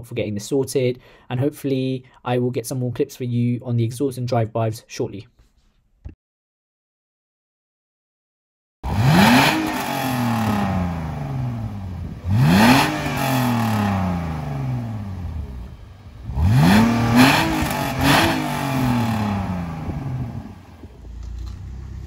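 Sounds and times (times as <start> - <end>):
car engine revving: 8.8 - 22.0.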